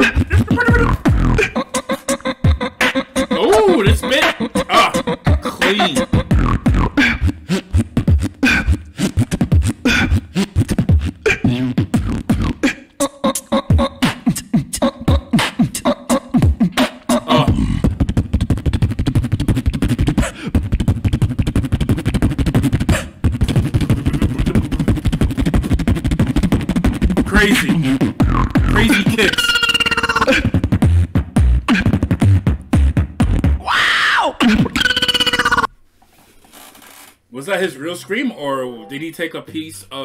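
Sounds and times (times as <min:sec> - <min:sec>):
low buzzing bass: 0:00.0 - 0:01.5, 0:06.2 - 0:12.6, 0:27.2 - 0:29.2
person beatboxing: 0:00.0 - 0:35.7.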